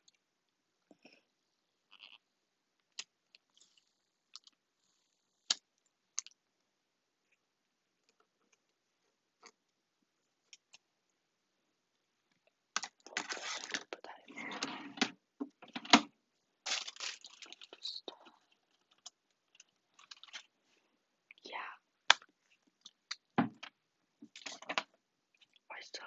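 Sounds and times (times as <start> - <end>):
plastic wrapper crinkling: 12.8 - 14.0, 16.6 - 20.5.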